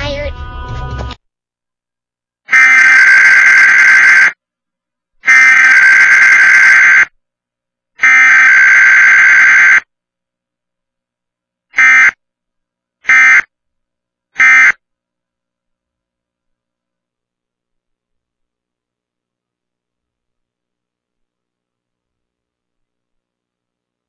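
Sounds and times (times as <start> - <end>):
shrill buzzing digital data tones: 2.6 - 4.4, 5.3 - 7.1, 8.0 - 9.9.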